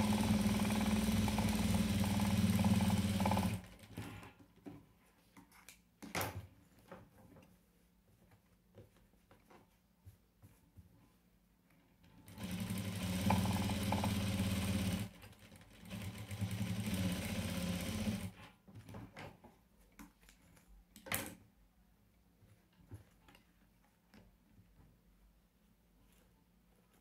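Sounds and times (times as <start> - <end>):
electric sewing machine running: 0.0 - 3.8, 12.3 - 18.4.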